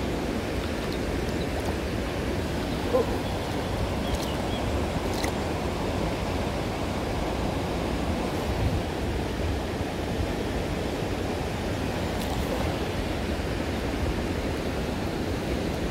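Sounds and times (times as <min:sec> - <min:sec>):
river water rushing over stones: 0:00.0 - 0:15.9.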